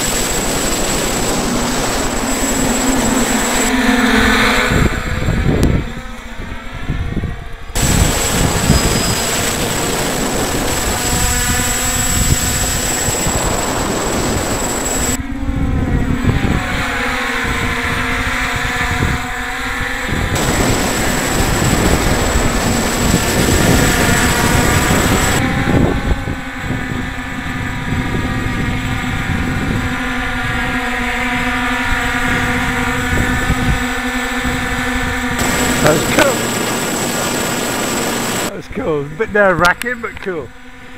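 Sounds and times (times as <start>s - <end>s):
drone propellers buzzing: 0.0s - 38.5s
wind on microphone: 0.0s - 38.6s.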